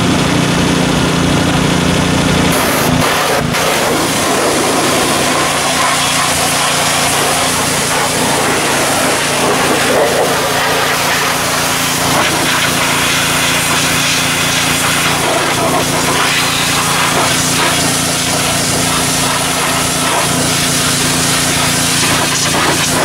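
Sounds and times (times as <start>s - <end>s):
engine hum: 0.0s - 23.0s
pressure washer spraying water: 0.0s - 23.0s.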